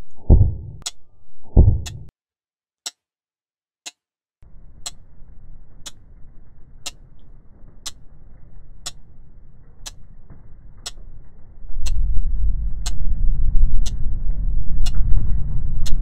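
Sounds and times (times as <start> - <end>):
low rumbling drone: 0.0 - 2.1, 4.5 - 16.0
sharp ticks: 1.6 - 2.1, 3.9 - 13.2, 13.8 - 14.1.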